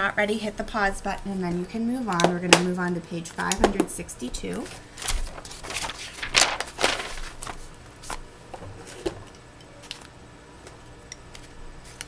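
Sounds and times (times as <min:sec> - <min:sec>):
paper rustling: 0:04.5 - 0:10.1.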